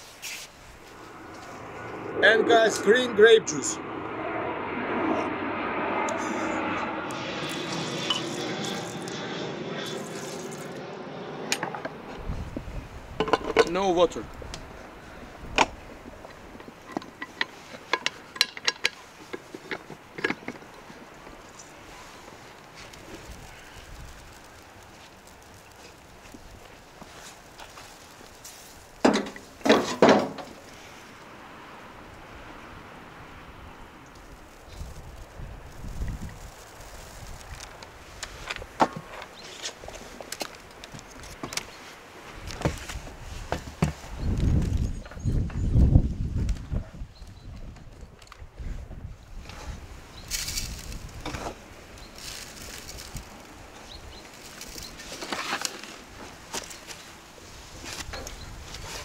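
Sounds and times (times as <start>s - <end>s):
low rumbling noise: 0.6s - 16.9s.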